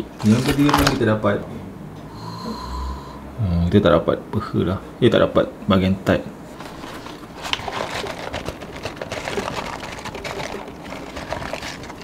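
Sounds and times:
paper carton rustling: 0.2s - 1.1s, 6.5s - 12.0s.

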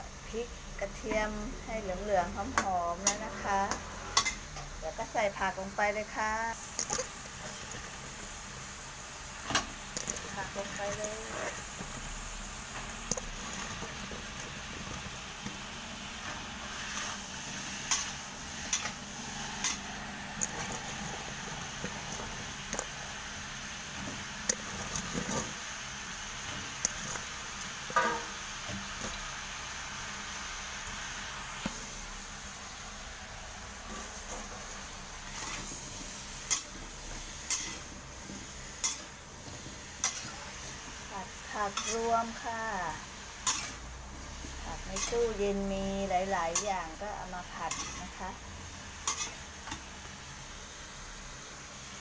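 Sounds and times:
food sizzling in a wok: 0.0s - 52.0s
hiss of frying: 0.0s - 52.0s
metal spatula scraping a pan: 3.0s - 4.5s, 24.0s - 25.7s, 26.4s - 29.2s, 33.8s - 48.2s, 49.0s - 49.9s.

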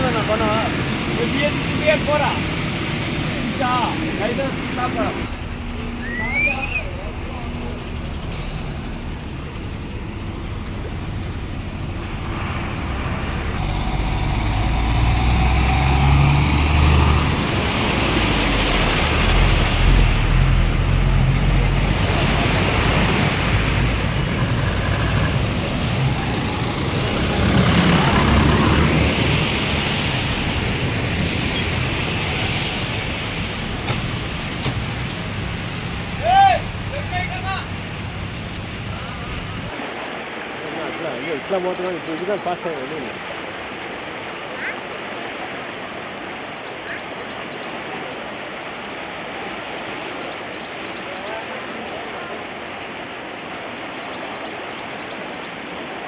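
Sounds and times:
diesel engine rumble: 0.0s - 39.8s
water splashing around wheels: 0.0s - 56.0s.

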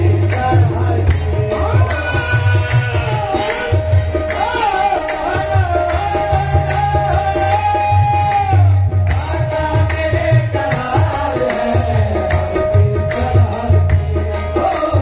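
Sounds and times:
tabla drumming: 0.0s - 15.0s.

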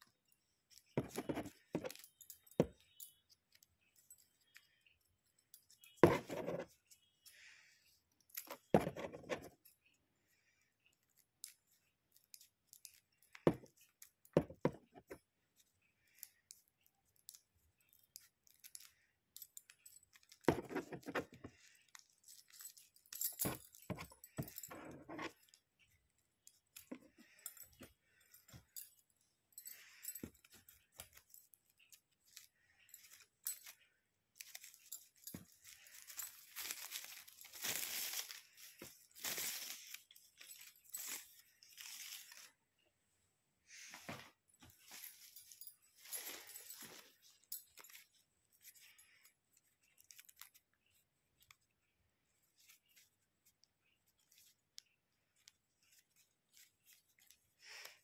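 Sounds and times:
paper rustling and crinkling: 34.4s - 42.6s, 49.6s - 50.8s.

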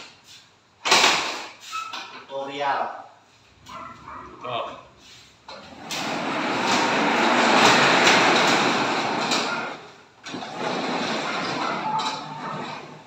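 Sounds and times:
sliding garage door rolling rumble: 5.5s - 13.0s.

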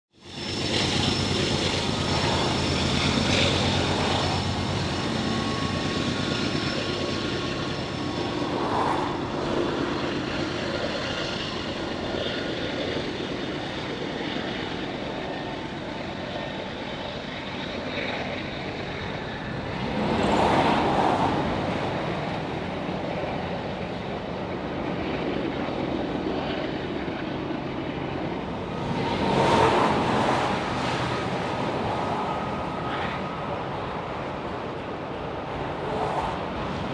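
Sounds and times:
train wheels rumbling on rail: 0.2s - 12.8s.

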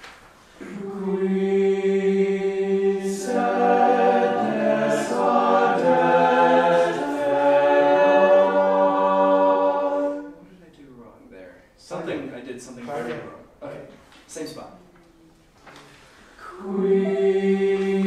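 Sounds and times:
choir singing sustained chords: 0.6s - 10.5s, 16.5s - 18.0s.

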